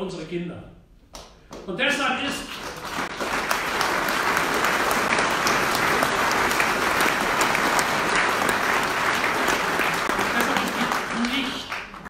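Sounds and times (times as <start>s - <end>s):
large audience applauding: 2.4s - 12.0s.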